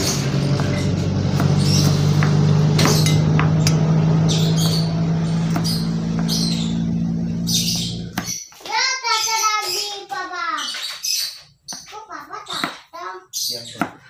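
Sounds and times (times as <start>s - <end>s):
low hum: 0.0s - 8.2s
knife chopping on cutting board: 0.5s - 3.9s, 5.4s - 6.4s, 8.1s - 8.4s.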